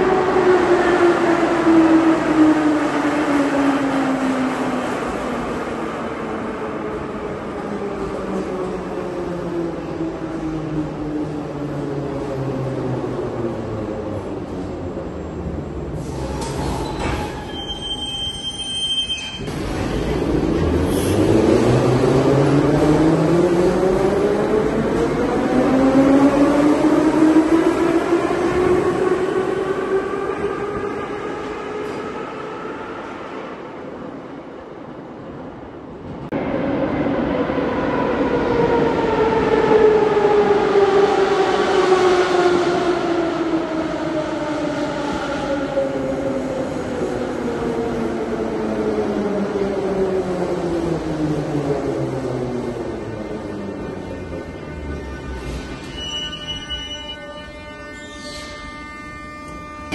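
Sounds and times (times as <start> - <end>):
train brake squeal: 16.1 - 19.6, 55.7 - 59.9
train whine falling in pitch: 53.4 - 59.9.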